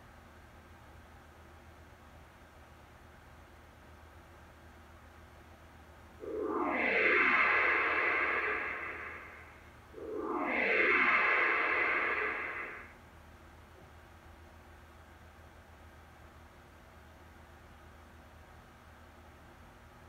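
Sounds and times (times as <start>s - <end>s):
synthesized whoosh: 6.2s - 12.9s.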